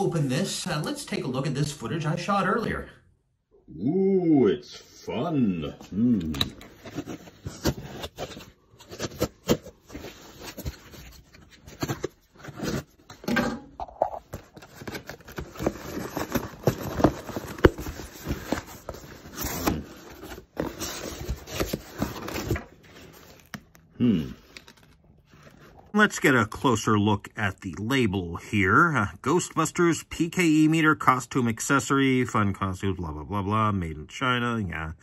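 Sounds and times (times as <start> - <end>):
cardboard box being handled: 6.7 - 13.0, 14.2 - 23.6.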